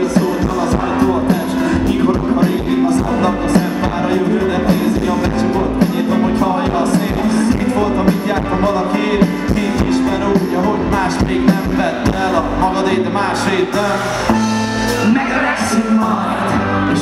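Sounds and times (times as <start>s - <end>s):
bass guitar: 0.0s - 17.0s
drums: 0.0s - 17.0s.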